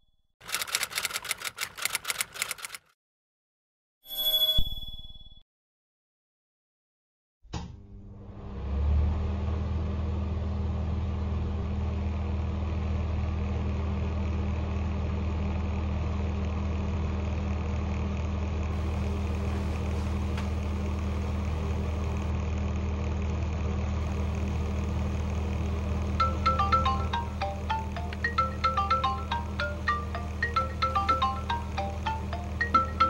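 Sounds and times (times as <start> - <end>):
marimba ringtone: 26.2 - 33.0.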